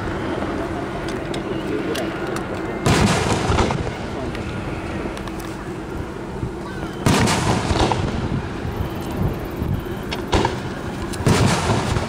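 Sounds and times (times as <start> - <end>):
firework booms: 2.8 - 4.2, 7.0 - 8.7, 10.3 - 12.0
firework sharp crack: 2.8 - 4.2, 7.0 - 8.5, 10.3 - 12.0.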